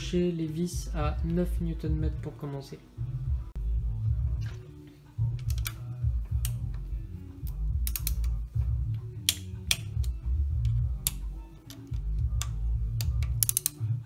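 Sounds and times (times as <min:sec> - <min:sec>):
background music: 0:00.0 - 0:14.0
torque wrench ratchet clicks: 0:11.0 - 0:13.8.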